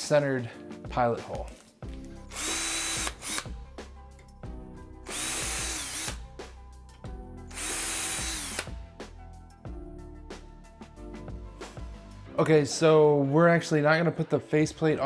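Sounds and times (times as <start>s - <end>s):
background music: 0.0s - 15.0s
cordless drill drilling: 2.2s - 3.6s, 5.0s - 6.3s, 7.4s - 8.8s.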